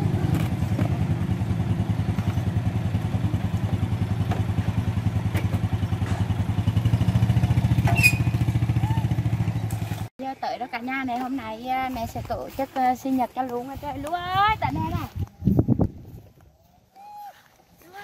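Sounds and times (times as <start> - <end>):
motorcycle engine idling: 0.0 - 10.1.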